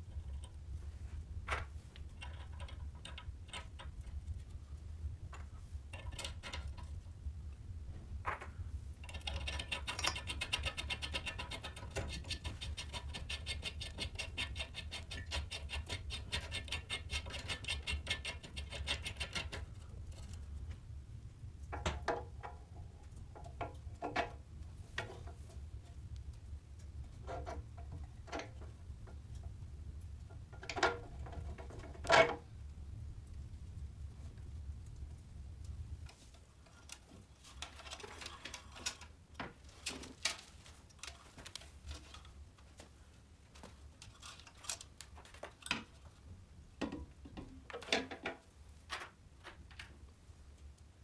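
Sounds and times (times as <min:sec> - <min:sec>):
hand tools scraping and knocking on metal: 0:00.0 - 0:04.2, 0:05.3 - 0:07.0, 0:08.2 - 0:20.5, 0:21.7 - 0:26.0, 0:27.0 - 0:29.5, 0:30.3 - 0:32.4, 0:46.8 - 0:50.0.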